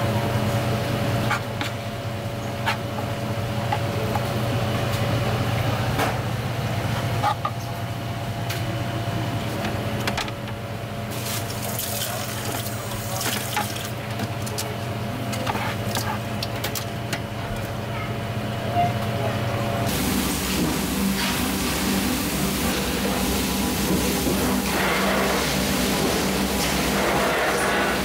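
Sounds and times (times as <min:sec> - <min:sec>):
water running and trickling: 0:11.2 - 0:14.7.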